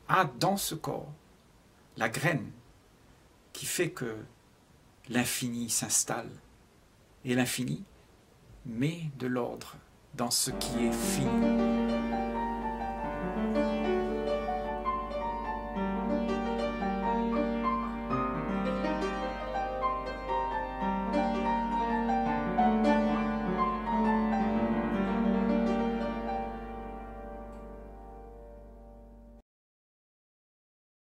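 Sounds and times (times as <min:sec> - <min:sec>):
slow piano music: 0:10.5 - 0:29.4.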